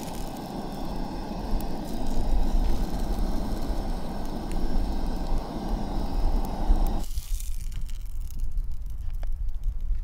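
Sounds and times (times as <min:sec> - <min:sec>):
gas stove burner rushing: 0:00.0 - 0:07.0.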